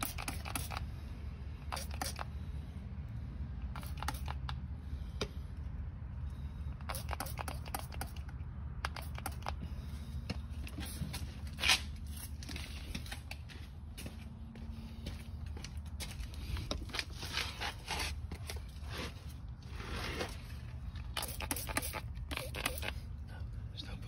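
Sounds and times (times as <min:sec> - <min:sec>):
spray bottle squirting: 0:00.0 - 0:00.9, 0:01.6 - 0:02.4, 0:03.7 - 0:04.6, 0:06.8 - 0:09.6, 0:21.0 - 0:23.1.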